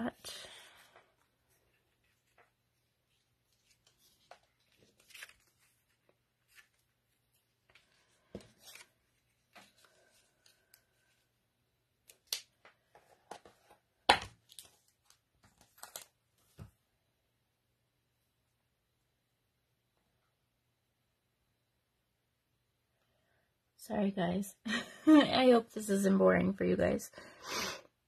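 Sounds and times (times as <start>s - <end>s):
paper rustling on table: 1.5s - 11.3s.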